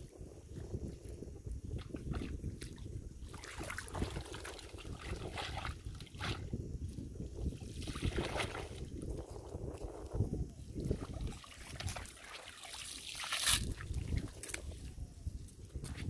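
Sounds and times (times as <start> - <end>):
wind rumble on microphone: 0.0 - 16.0
water trickling from net: 10.9 - 14.4.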